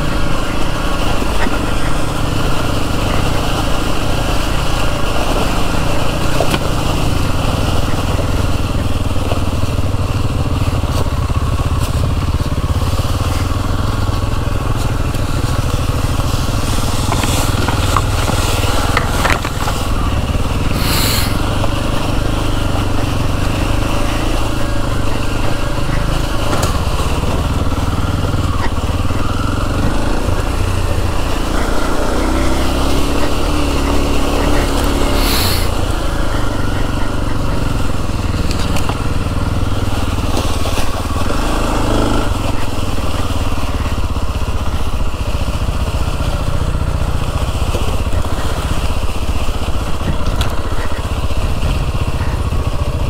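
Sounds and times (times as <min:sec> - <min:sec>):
motorcycle engine running: 0:00.0 - 0:53.0
burst of noise: 0:16.0 - 0:21.6, 0:33.8 - 0:36.2.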